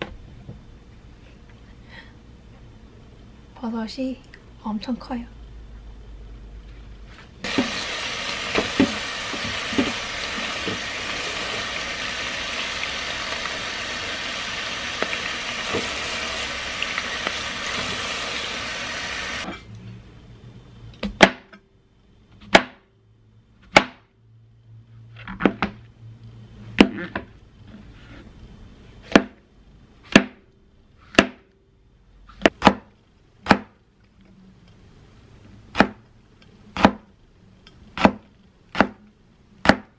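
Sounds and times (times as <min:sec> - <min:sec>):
knife chopping on plastic board: 0:29.0 - 0:29.4, 0:31.1 - 0:31.4, 0:32.4 - 0:33.8, 0:35.7 - 0:36.0, 0:36.8 - 0:37.1, 0:38.0 - 0:39.0, 0:39.6 - 0:39.9.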